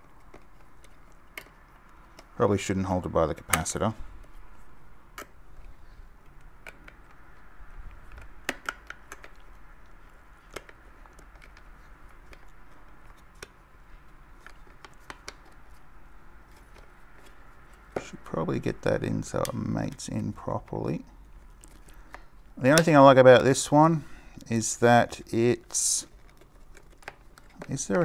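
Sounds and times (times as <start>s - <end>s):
clicks and taps of handled plastic parts: 0.0s - 2.4s, 5.1s - 15.8s, 21.6s - 22.9s, 26.0s - 28.0s.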